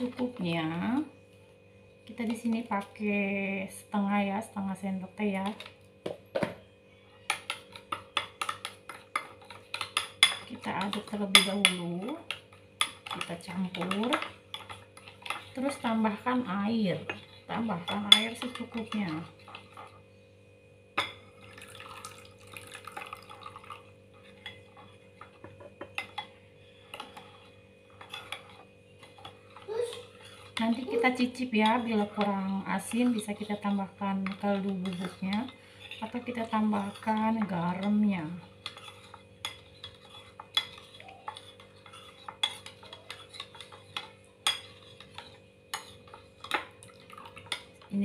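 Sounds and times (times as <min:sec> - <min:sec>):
metal spoon clinking against bowl: 0:07.3 - 0:15.8, 0:17.8 - 0:19.9, 0:38.6 - 0:46.7
water pouring into a bowl: 0:21.4 - 0:23.8.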